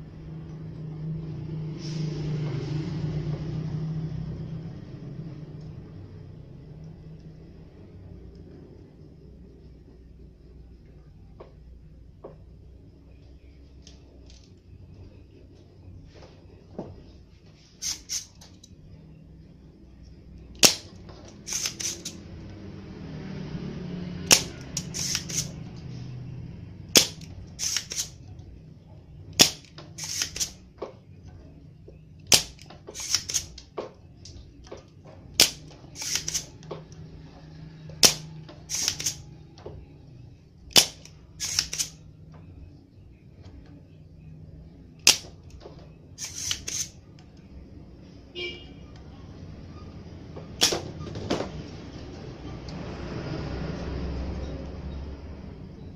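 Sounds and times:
desoldering pump snapping: 20.4s - 22.2s, 24.2s - 25.6s, 26.9s - 28.2s, 29.3s - 31.0s, 32.2s - 37.0s, 37.9s - 39.7s, 40.7s - 42.4s, 45.0s - 47.5s.

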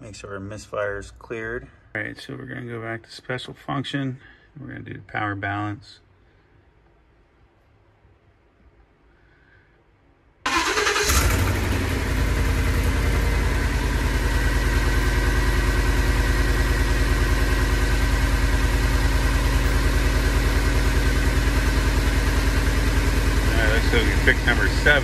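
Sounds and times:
car engine starting and idling: 10.5s - 25.0s.

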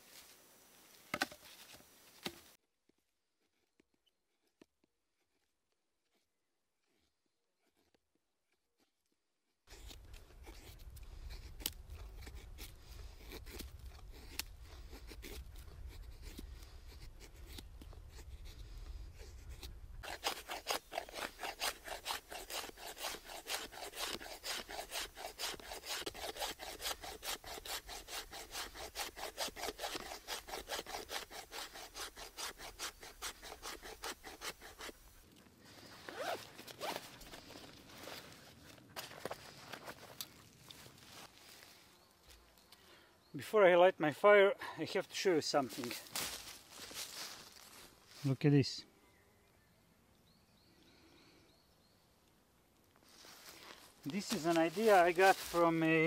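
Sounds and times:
hand saw cutting wood: 19.5s - 35.2s, 36.1s - 37.4s, 54.1s - 56.0s.

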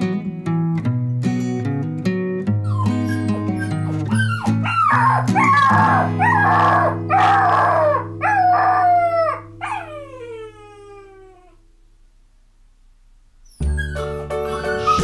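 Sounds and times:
dog yelping and howling: 2.7s - 11.6s, 13.5s - 15.0s.

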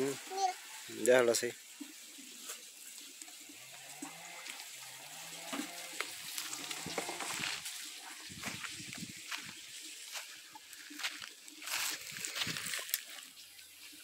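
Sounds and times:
footsteps on dry leaves: 5.9s - 14.0s.

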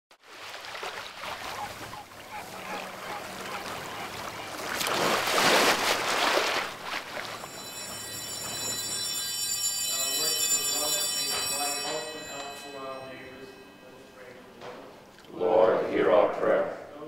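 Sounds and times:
small waves washing on shore: 0.2s - 8.8s
wind: 0.2s - 16.8s.

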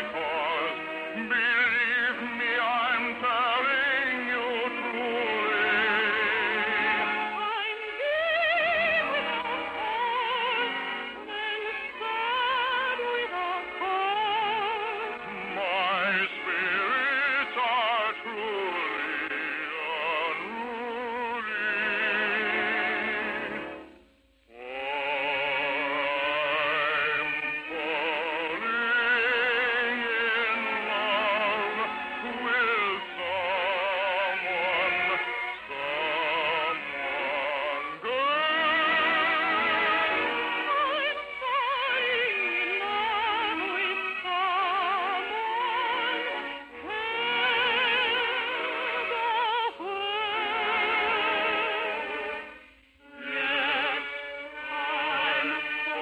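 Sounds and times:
operatic singing: 0.0s - 23.8s, 24.5s - 56.0s.

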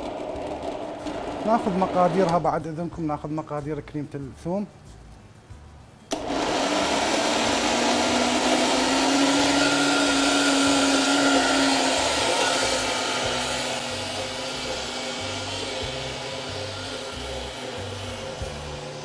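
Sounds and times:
electric blender running: 0.0s - 2.4s, 6.1s - 19.0s.

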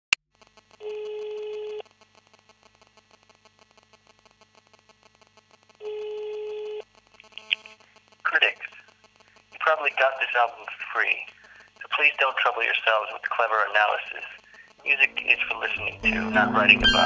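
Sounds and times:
telephone ringback tone: 15.2s - 17.0s.

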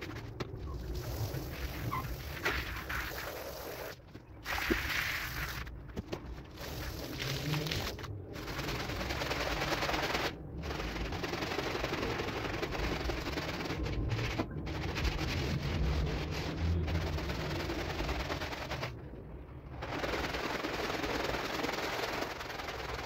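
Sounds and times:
cleaning machine rattling: 6.4s - 19.0s, 19.6s - 23.0s.

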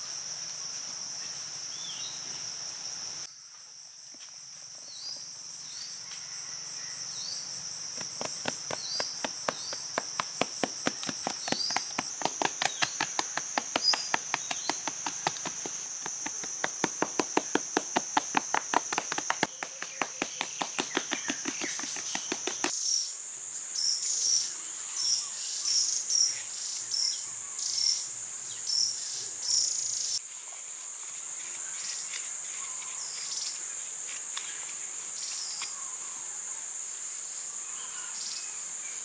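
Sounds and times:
high-pitched insect chorus: 0.0s - 39.0s
sharp taps: 8.0s - 22.7s.

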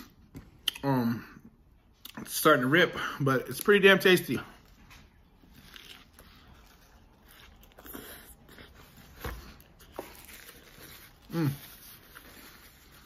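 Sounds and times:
man chewing crunchy food: 4.5s - 13.0s.

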